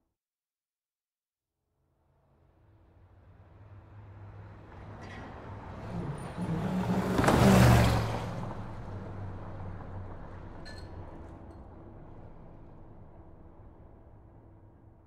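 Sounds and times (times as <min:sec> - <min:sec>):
car driving past: 0:03.0 - 0:13.9.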